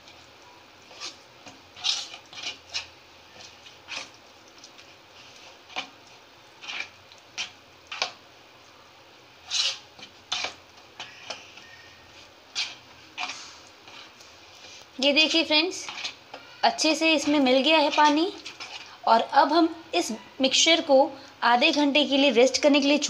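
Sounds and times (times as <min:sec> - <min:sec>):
spoon stirring thick batter: 0:00.0 - 0:19.3.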